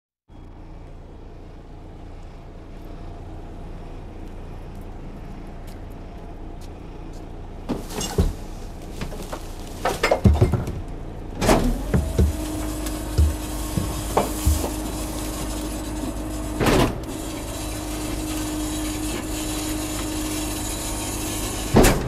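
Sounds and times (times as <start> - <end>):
diesel engine idling: 0.3 - 22.0
metal clanking: 7.8 - 18.4
heavy metallic bangs: 11.5 - 17.9.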